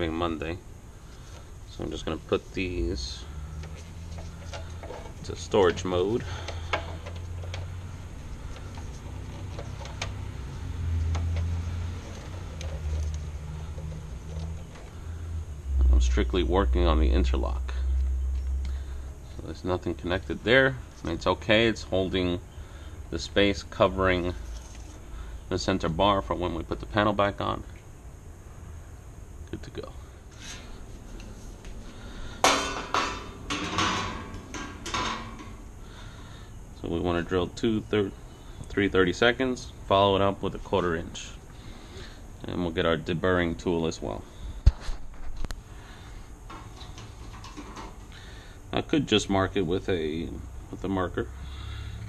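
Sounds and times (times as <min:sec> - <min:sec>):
low hum: 0:00.0 - 0:25.6
sheet metal clanking on tiles: 0:32.4 - 0:35.6.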